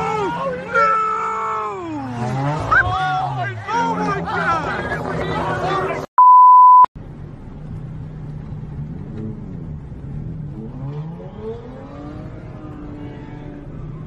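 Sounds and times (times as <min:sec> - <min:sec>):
car engine revving: 0:01.7 - 0:06.0, 0:08.4 - 0:14.0
loud steady beep: 0:06.2 - 0:06.9.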